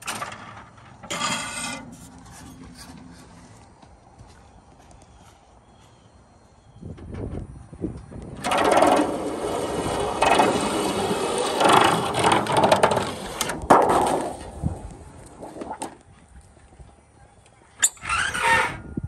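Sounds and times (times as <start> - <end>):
slitter rasping through sheet metal: 0.0 - 2.5, 8.4 - 14.3.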